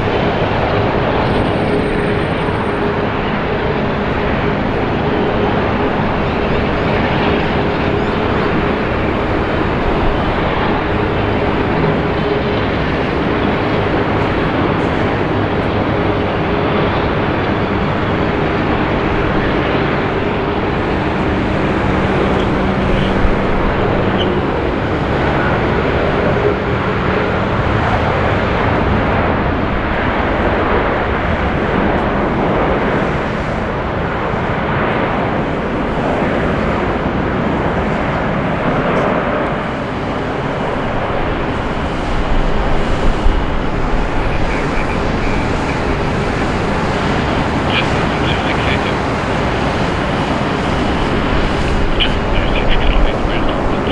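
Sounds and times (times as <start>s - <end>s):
jet engines roaring: 0.0s - 53.9s.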